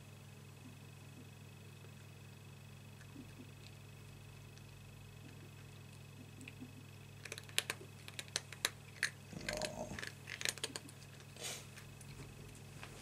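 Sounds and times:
cat crunching dry treats: 0:07.2 - 0:12.6.

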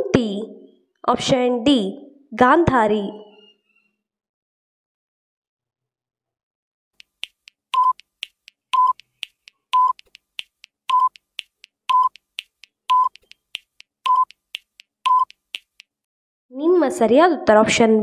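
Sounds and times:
light timer ticks: 0:07.0 - 0:16.0
short electronic beeps: 0:07.7 - 0:08.1, 0:08.7 - 0:09.1, 0:09.8 - 0:10.1, 0:10.9 - 0:11.2, 0:11.9 - 0:12.3, 0:12.9 - 0:13.2, 0:14.1 - 0:14.4, 0:15.0 - 0:15.4.

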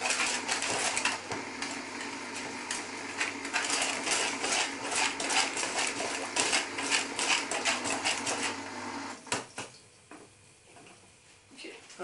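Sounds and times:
whisk beating batter in bowl: 0:00.0 - 0:09.3.

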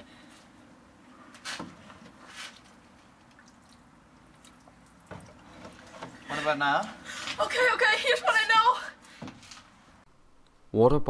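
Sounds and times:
water splashing onto cloth: 0:02.1 - 0:06.4.

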